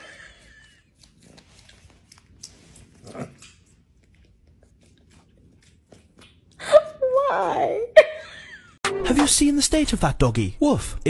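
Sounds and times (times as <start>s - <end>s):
kitten licking and nibbling: 0.4s - 6.6s.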